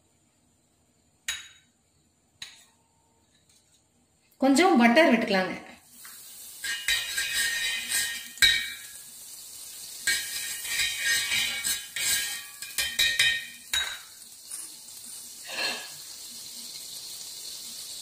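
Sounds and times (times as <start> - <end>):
butter sizzling: 5.8 - 18.0
knife scraping on griddle: 6.0 - 8.9, 10.0 - 16.0.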